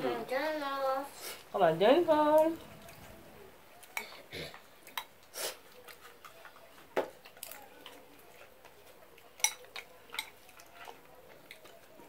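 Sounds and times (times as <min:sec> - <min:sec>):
spoons clinking against bowls: 0:09.3 - 0:11.0.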